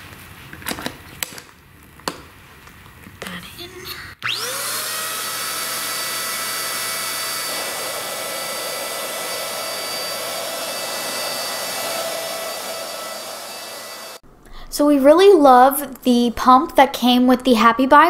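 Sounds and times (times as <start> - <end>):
electric air pump whining: 4.2 - 14.2.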